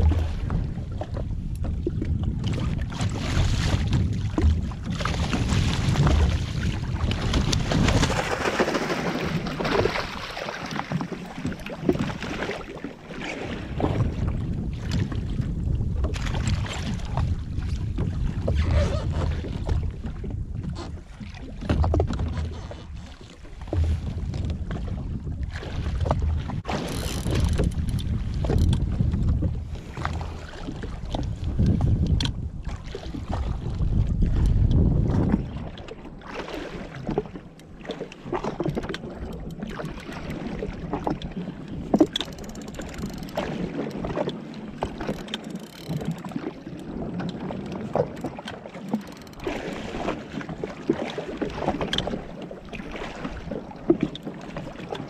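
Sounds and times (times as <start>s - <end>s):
wind buffeting microphone: 0.0s - 36.2s
water slapping against hull: 0.0s - 55.0s.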